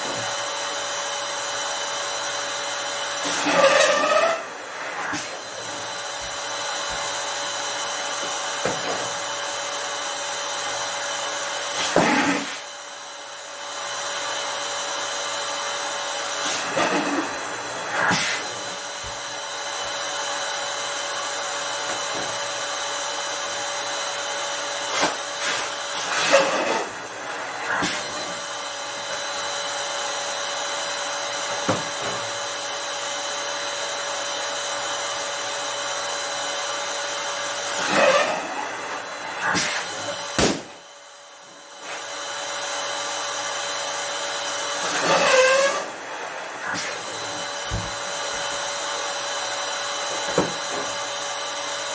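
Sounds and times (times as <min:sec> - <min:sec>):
electric balloon inflator blowing: 0:00.0 - 0:51.9
balloon rubber squeaking: 0:03.3 - 0:04.4, 0:44.9 - 0:45.8.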